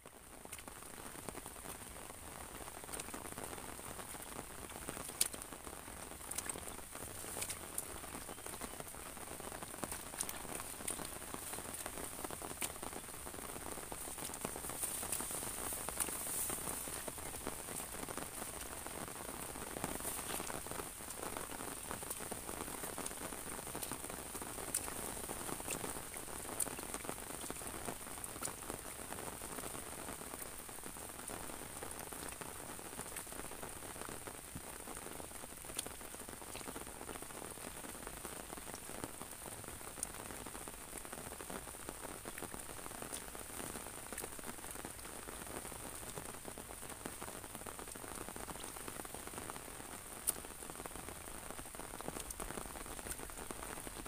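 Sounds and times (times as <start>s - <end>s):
rain hissing: 0.0s - 54.0s
raindrops tapping umbrella: 0.0s - 54.0s.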